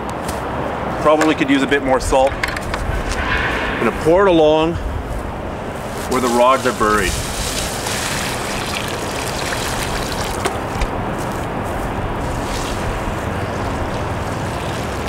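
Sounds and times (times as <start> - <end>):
steady background noise: 0.0 - 15.0
water splashing and trickling: 5.9 - 11.3, 12.1 - 15.0.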